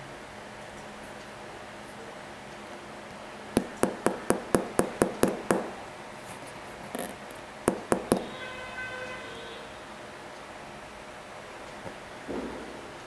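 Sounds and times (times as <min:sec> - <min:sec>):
finger tapping on hard plastic: 0:03.6 - 0:05.8, 0:07.7 - 0:08.3.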